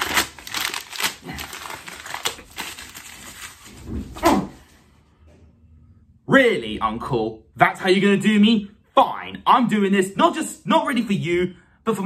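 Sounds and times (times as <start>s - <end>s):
paper crumpling: 0.0s - 3.9s.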